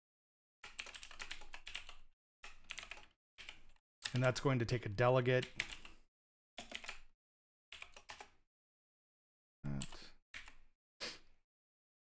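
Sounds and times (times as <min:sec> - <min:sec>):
computer keyboard typing: 0:00.6 - 0:04.4, 0:05.4 - 0:06.0, 0:06.6 - 0:07.1, 0:07.7 - 0:08.4, 0:09.7 - 0:10.6.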